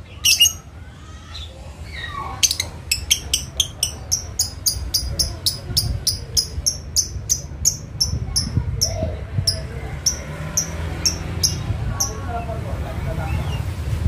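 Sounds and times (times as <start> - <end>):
lovebird chattering chirps: 0.0 - 0.7, 2.4 - 12.2.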